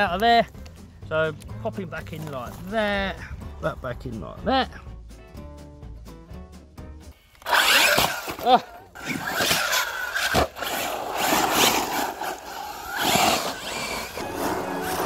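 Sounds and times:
rc car motor whine: 7.3s - 15.0s
tyres scrabbling on loose ground: 7.5s - 15.0s.

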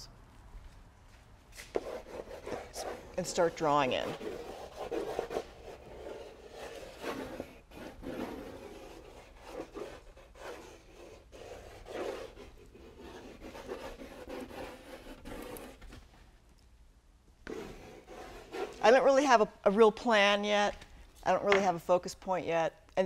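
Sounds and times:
pencil scratching on paper: 1.7s - 16.0s, 17.4s - 19.0s.

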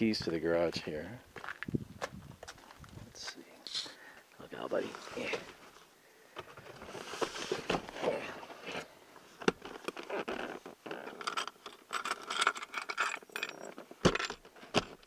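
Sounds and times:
keys clinking: 11.1s - 14.4s.

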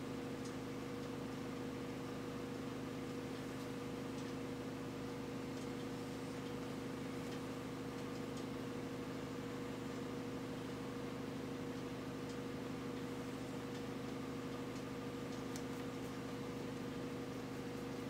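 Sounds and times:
low room hum: 0.0s - 18.0s.

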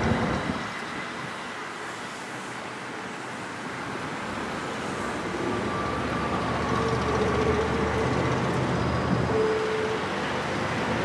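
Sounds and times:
cars driving on street: 0.0s - 11.0s
freight train rumbling over bridge: 0.0s - 11.0s
thin steady squeal: 5.3s - 10.0s.

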